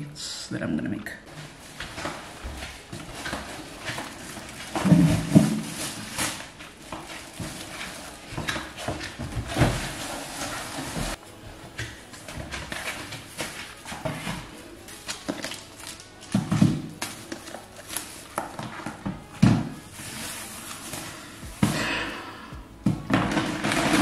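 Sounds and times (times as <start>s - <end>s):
plastic bags rustling: 1.0s - 24.0s.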